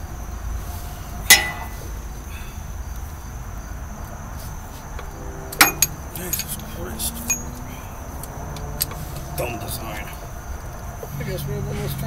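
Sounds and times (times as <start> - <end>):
hand tool clinking on metal: 1.3 - 1.8, 5.6 - 7.7
low rumble: 4.6 - 9.3
faint high-pitched tone: 5.0 - 7.7.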